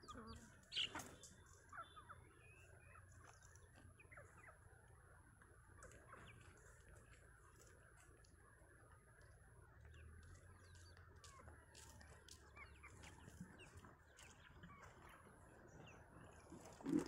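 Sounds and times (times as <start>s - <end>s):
faint chicken clucks: 0.0s - 17.0s
small birds chirping: 0.0s - 17.0s.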